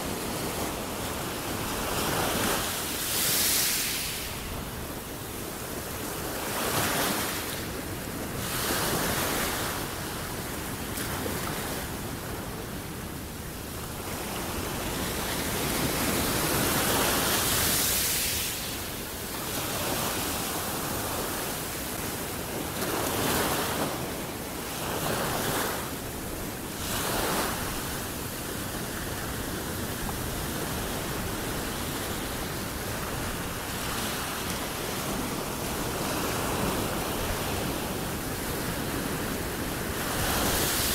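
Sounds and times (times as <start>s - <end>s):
small waves breaking on beach: 0.0s - 40.9s.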